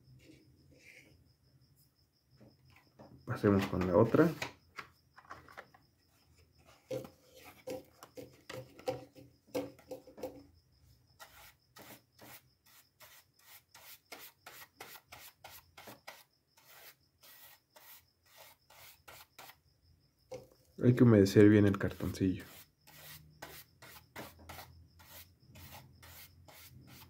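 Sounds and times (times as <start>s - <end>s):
paintbrush scratching on cardboard: 11.2s - 19.6s, 21.6s - 27.0s.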